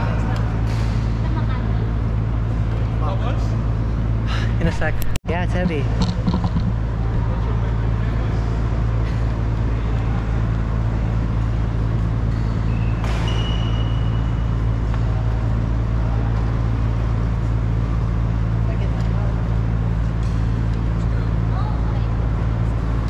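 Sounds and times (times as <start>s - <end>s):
low hum and rumble: 0.0s - 23.0s
high squeal: 12.3s - 14.5s.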